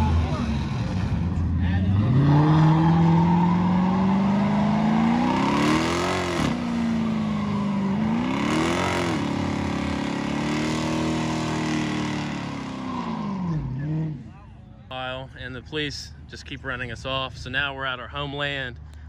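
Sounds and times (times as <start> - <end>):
car engine revving: 0.0 - 14.5.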